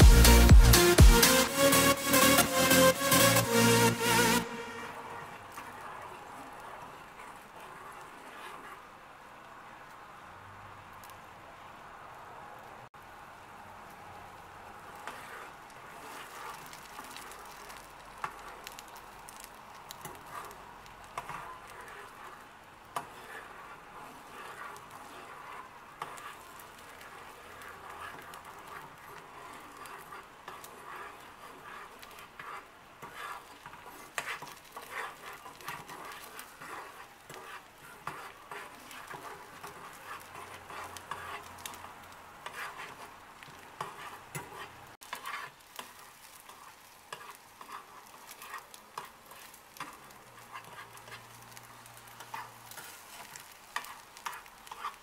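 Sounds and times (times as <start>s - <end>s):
eggs sizzling in a frying pan: 3.5s - 12.1s, 12.8s - 55.0s
fork scraping and tapping a pan: 23.0s - 51.6s, 52.2s - 55.0s.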